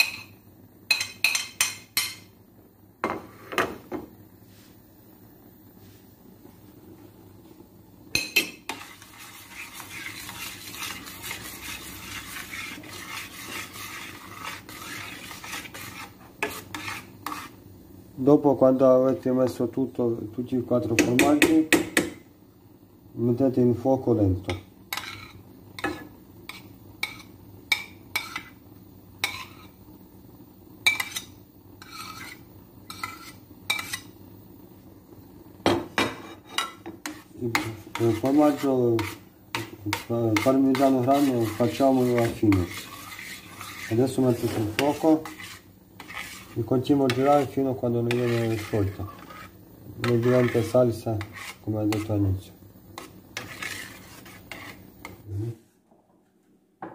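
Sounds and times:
spoon scraping and knocking on pan: 0.0 - 2.3, 3.0 - 4.1, 8.1 - 17.6, 20.9 - 22.3, 24.4 - 28.6, 29.2 - 29.8, 30.8 - 34.2, 35.6 - 52.2, 52.9 - 55.3
stirring thick sauce: 8.6 - 17.6, 37.0 - 52.2, 53.0 - 55.2.

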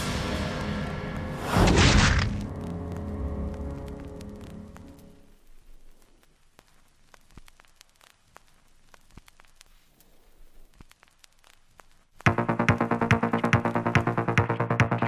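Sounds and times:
music: 0.0 - 5.3, 12.3 - 15.0
film soundtrack static hiss: 0.0 - 15.0
clicks and pops: 6.0 - 12.8.

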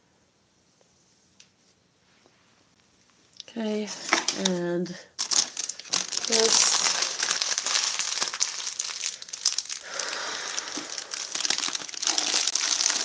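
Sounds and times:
crinkling handling noise: 3.0 - 13.0.

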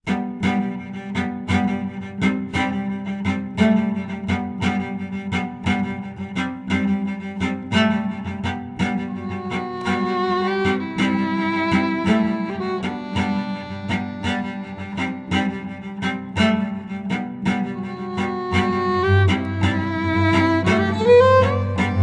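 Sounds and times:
cello bow strokes: 0.0 - 22.0.

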